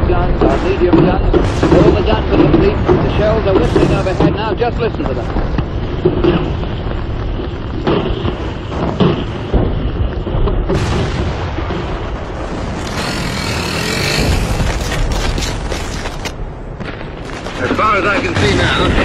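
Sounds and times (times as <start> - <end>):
rumble of gunfire: 0.0 - 19.0
sharp explosion bursts: 10.7 - 17.7.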